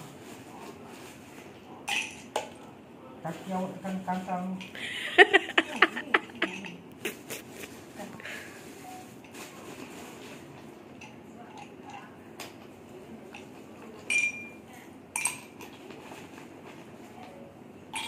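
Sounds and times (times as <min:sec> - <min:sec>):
dishes and glassware clinking: 0:01.8 - 0:02.6, 0:06.3 - 0:06.8, 0:13.3 - 0:16.0.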